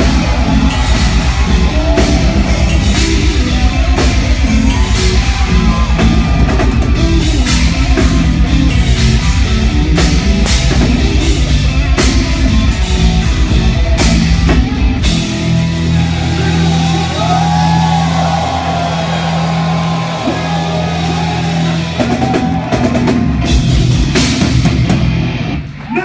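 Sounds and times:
fast drumming: 0:00.0 - 0:15.4, 0:20.2 - 0:25.3
distorted guitars: 0:00.0 - 0:26.0
heavy metal band playing live: 0:00.0 - 0:26.0.

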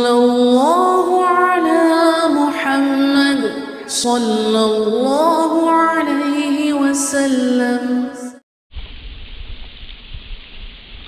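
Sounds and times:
person singing long held notes: 0:00.0 - 0:08.4.

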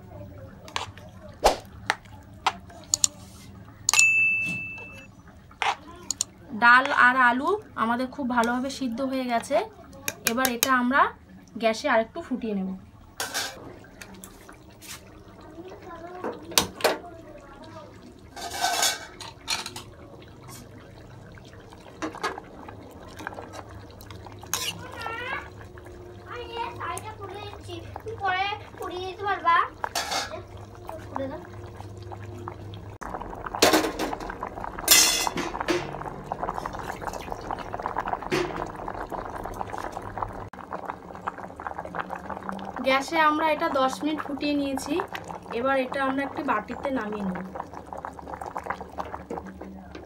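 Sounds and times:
metal pot ringing: 0:03.9 - 0:05.1, 0:34.9 - 0:36.0
liquid sloshing: 0:13.2 - 0:50.0
metal spatula scraping a pot: 0:18.4 - 0:19.1, 0:24.5 - 0:25.0.

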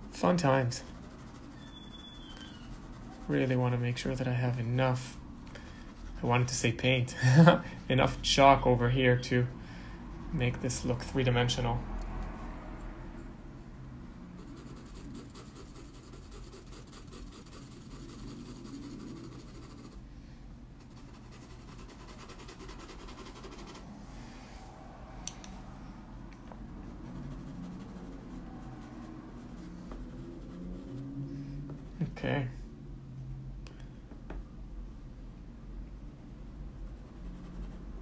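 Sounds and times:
pastel pencil scratching on paper: 0:00.0 - 0:06.8, 0:14.4 - 0:20.0, 0:20.8 - 0:23.9, 0:26.8 - 0:31.2, 0:36.1 - 0:38.0
faint low hum: 0:00.0 - 0:38.0.

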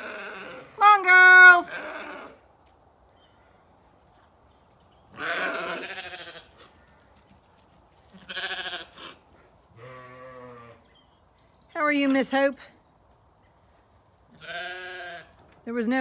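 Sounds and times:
sheep bleating: 0:00.0 - 0:02.4, 0:05.2 - 0:06.7, 0:08.2 - 0:09.2, 0:09.8 - 0:10.9, 0:14.4 - 0:15.4.

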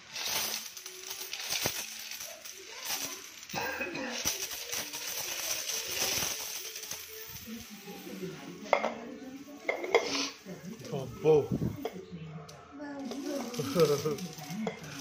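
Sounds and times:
coins jingling and clinking: 0:00.0 - 0:08.3, 0:13.0 - 0:15.0.

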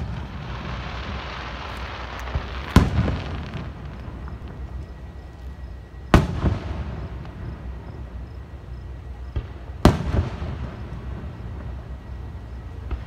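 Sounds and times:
firework booms with echo: 0:00.0 - 0:04.7, 0:06.1 - 0:08.1, 0:09.2 - 0:11.9
hissing crackle of shells: 0:00.0 - 0:05.7.

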